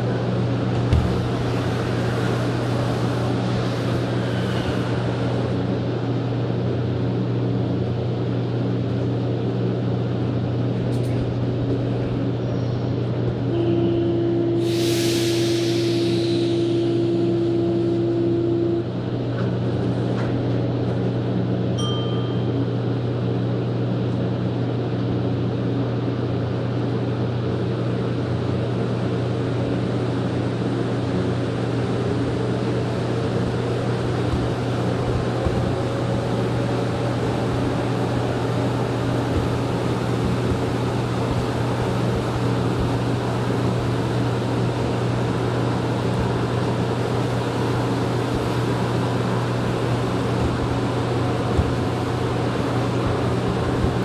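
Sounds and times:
train running noise from inside: 0.0 - 54.0
higher steady tone: 13.5 - 19.0.

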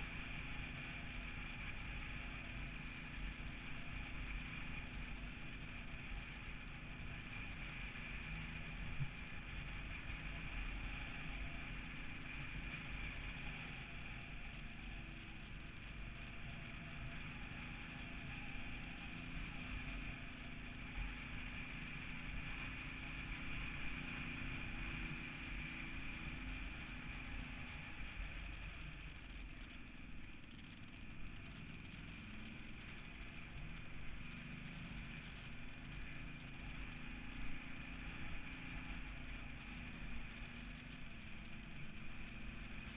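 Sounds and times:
small motorcycle engine running: 0.0 - 42.9
steady high whine: 0.0 - 42.9.

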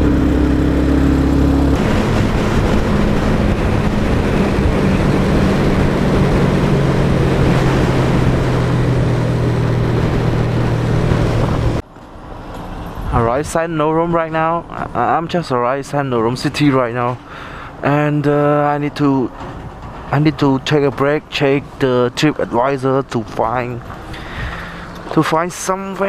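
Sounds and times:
wind rush on microphone: 0.0 - 11.8, 19.3 - 21.8, 23.6 - 25.1
motorcycle engine running: 0.0 - 12.1.

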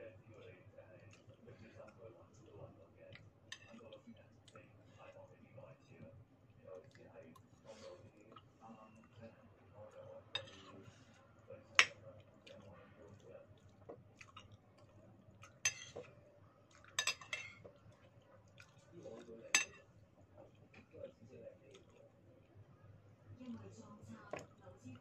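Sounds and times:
spoon scraping a plate: 10.4 - 10.8, 15.7 - 16.0.

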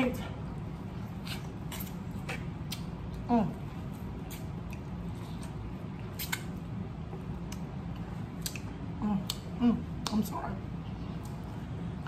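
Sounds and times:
steady low hum: 0.0 - 12.0
chewing corn on the cob: 0.9 - 10.1.

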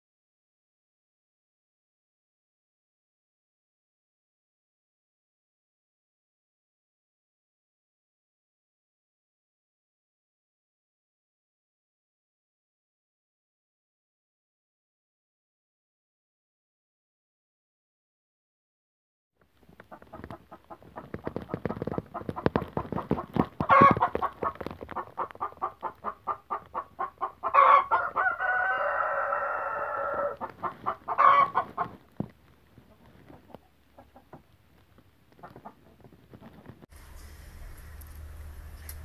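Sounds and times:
chickens clucking: 19.8 - 28.6, 29.8 - 32.0, 32.8 - 34.5
long drawn-out chicken call: 27.0 - 30.5, 31.1 - 31.8.

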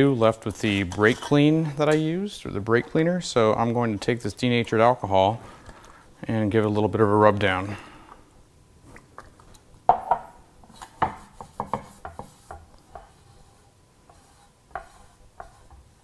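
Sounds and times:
rag rubbing over metal pan: 11.2 - 16.0.

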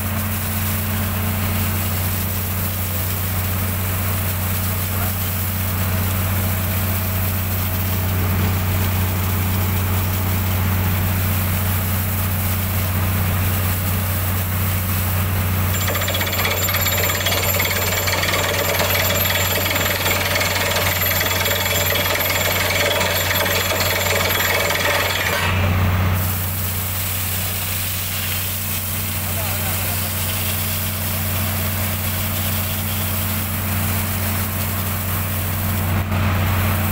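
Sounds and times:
drilling rig engine running: 15.4 - 26.3
drill hammer rattling: 15.7 - 25.8.

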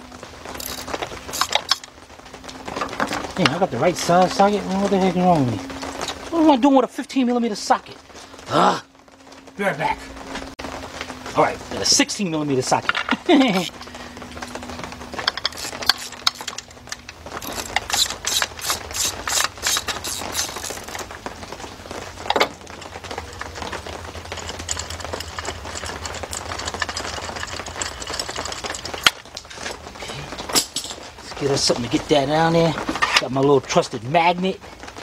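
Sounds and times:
hand ratchet clicking: 15.3 - 16.6, 17.4 - 20.9
spark plug rasping: 15.4 - 16.6, 17.4 - 21.0.

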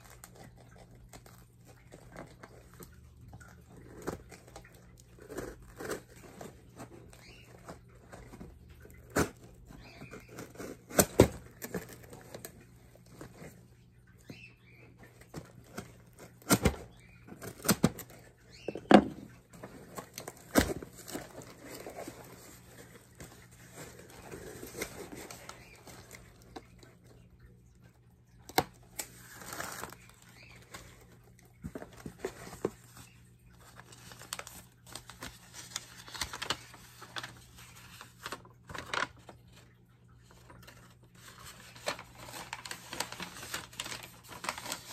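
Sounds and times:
scraping rustling cardboard: 41.2 - 44.9.

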